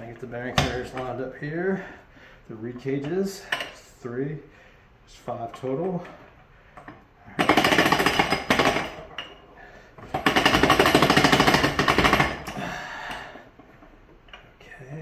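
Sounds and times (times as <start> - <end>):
rapid metallic rattling: 7.3 - 9.1, 10.1 - 12.6.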